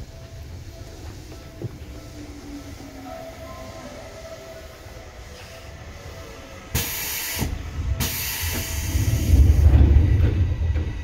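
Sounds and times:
low train rumble: 0:00.0 - 0:11.0
compressed air hiss: 0:06.7 - 0:09.6.

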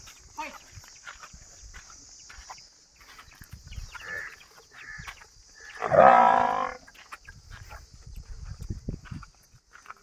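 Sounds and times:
water buffalo calling: 0:05.6 - 0:06.8.

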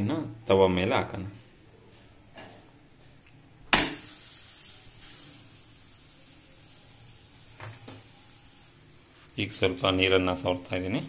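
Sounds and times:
flatbread sizzling on griddle: 0:03.8 - 0:09.3.

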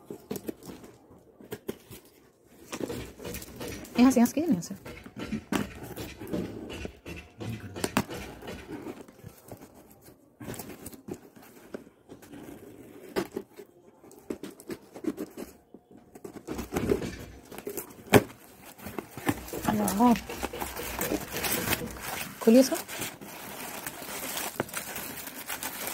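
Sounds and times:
knife slitting parcel wrapping: 0:16.2 - 0:25.9.

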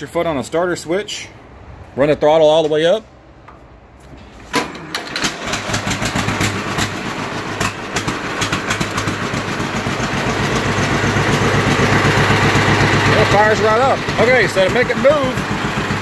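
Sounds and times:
tractor engine running: 0:03.4 - 0:16.0.

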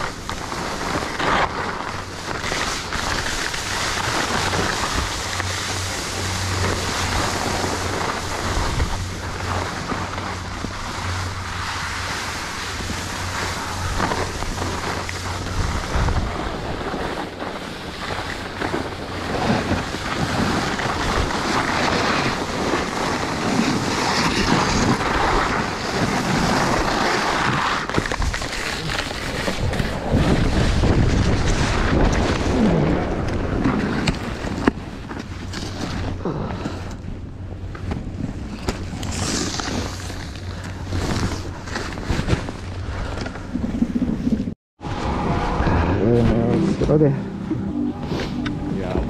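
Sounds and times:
wind buffeting microphone: 0:00.0 - 0:26.9, 0:29.4 - 0:39.0
skis scraping over snow: 0:00.0 - 0:37.0, 0:37.7 - 0:49.0.

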